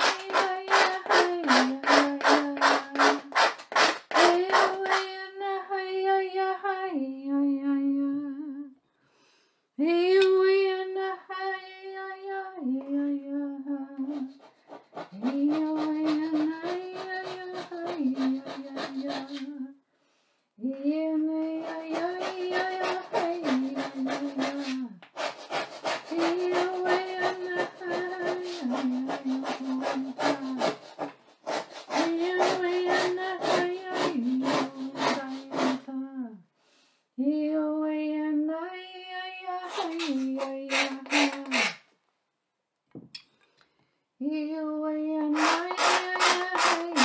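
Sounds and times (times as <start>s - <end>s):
pointed tool scratching a board: 0.0s - 5.1s, 14.1s - 19.4s, 21.5s - 35.8s, 39.7s - 41.8s, 45.4s - 47.0s.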